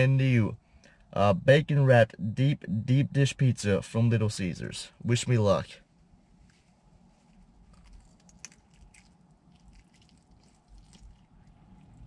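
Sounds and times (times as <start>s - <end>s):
soft crunches: 6.3s - 12.0s
biting and chewing food: 7.4s - 12.0s.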